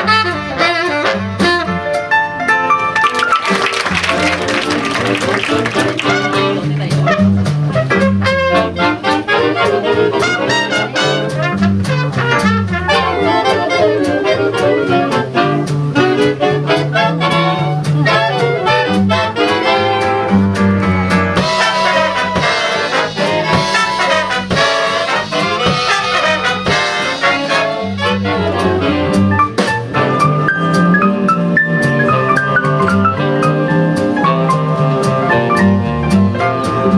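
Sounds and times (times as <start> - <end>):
big band jazz: 0.0 - 36.9
trumpets and trombones: 3.0 - 20.4, 21.4 - 29.3
walking upright bass: 3.0 - 36.9
tenor saxophone: 6.0 - 20.3.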